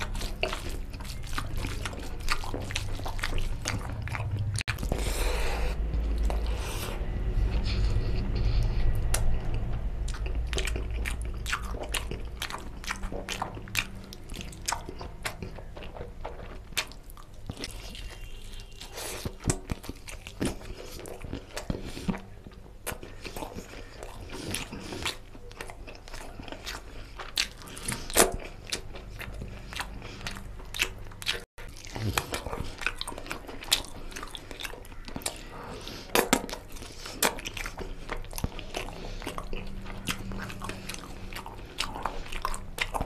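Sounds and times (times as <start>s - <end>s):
low hum: 0.0s - 16.4s
biting and chewing mouth smacks: 0.0s - 43.0s.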